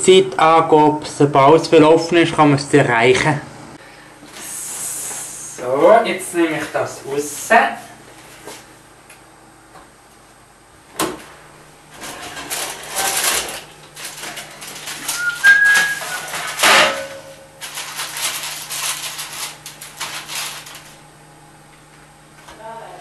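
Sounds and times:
baking paper rustling: 11.9 - 21.0
high squeak: 15.1 - 16.6.

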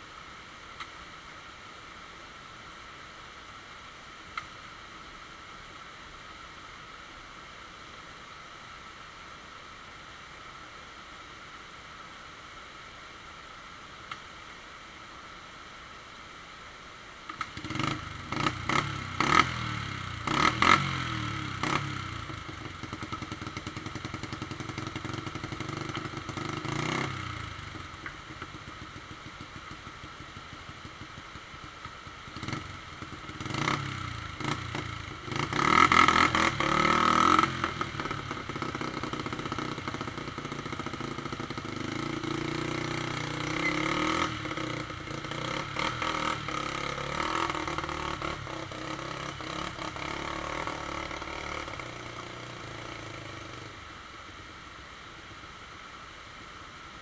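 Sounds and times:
rocky creek rushing: 0.0 - 57.0
dirt bike engine revving: 17.4 - 29.4, 32.2 - 53.7.

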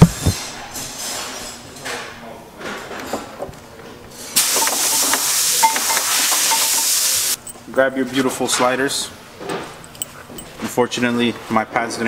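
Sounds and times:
loud steady hiss: 4.4 - 7.4.

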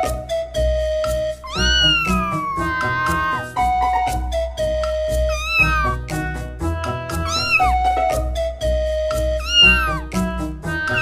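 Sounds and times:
background music with steady beat: 0.0 - 11.0
kitten meowing: 1.4 - 3.5, 5.3 - 6.0, 7.2 - 7.9, 9.4 - 10.1, 10.8 - 11.0.

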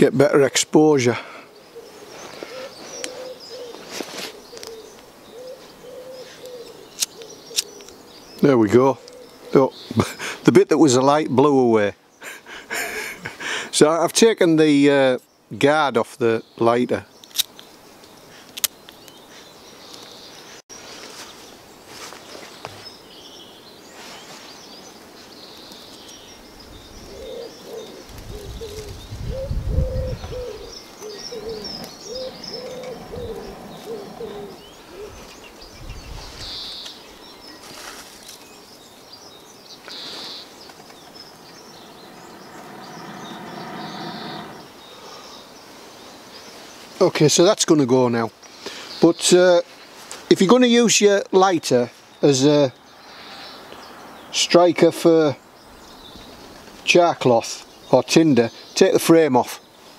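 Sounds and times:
small birds chirping: 0.0 - 59.9
pigeon cooing: 1.7 - 8.0, 9.0 - 9.6, 27.0 - 35.4, 39.9 - 45.2
wind buffeting microphone: 28.0 - 36.6
person blowing on tinder: 41.4 - 44.7.

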